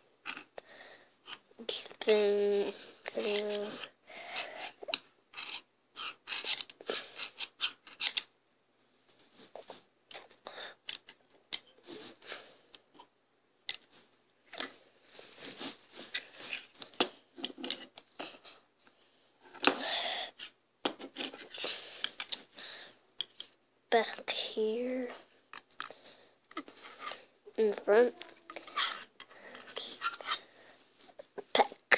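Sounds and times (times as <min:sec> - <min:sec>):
plastic bricks clicking: 0:04.8 - 0:08.3.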